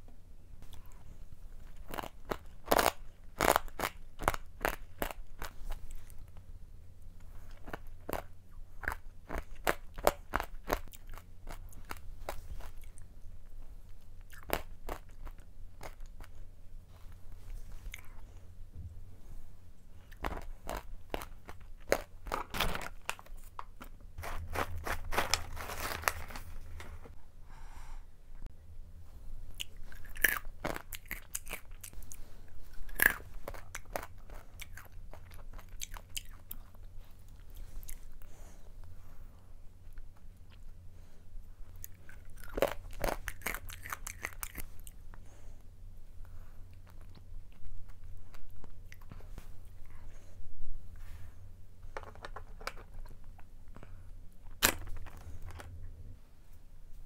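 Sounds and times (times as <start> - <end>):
crunching and chewing nuts: 0.6 - 6.5, 7.2 - 18.4, 20.0 - 26.8, 29.5 - 38.6, 41.7 - 45.6, 46.7 - 50.1.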